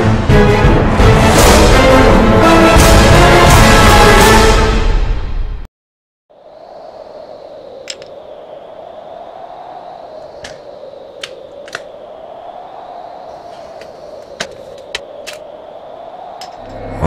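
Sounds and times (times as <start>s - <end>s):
faint high whine: 6.3s - 17.0s.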